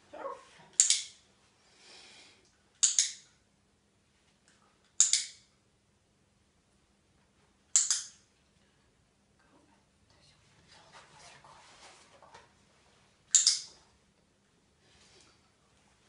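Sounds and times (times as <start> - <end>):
dog-training clicker clicks: 5.0 - 5.4, 13.3 - 13.7.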